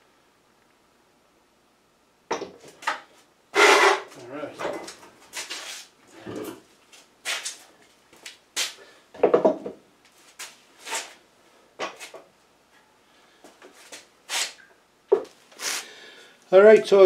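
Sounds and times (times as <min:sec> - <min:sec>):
air compressor knocks and scrapes: 0:03.6 - 0:04.9.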